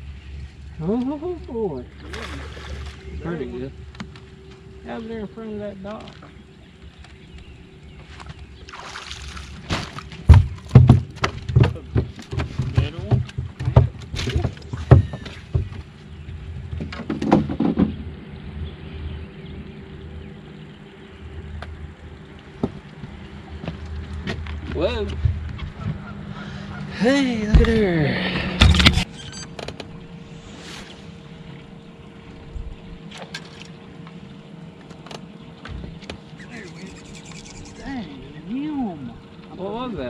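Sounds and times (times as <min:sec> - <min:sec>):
low wind rumble: 0:00.0 - 0:40.0
steady low hum: 0:00.0 - 0:40.0
knocks and thumps on boat deck: 0:09.3 - 0:18.1, 0:22.5 - 0:26.2, 0:27.4 - 0:27.9, 0:34.8 - 0:36.4.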